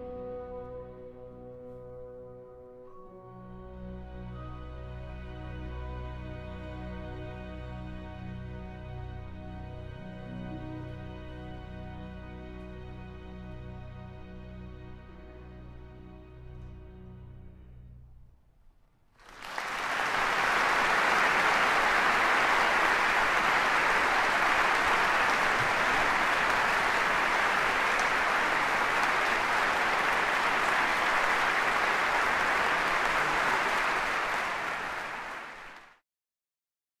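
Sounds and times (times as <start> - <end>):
large audience applauding: 19.2 - 36.0.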